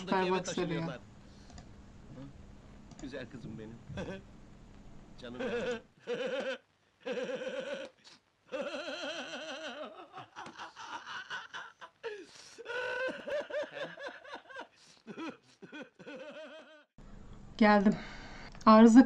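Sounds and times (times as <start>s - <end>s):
person laughing: 5.4s - 16.9s.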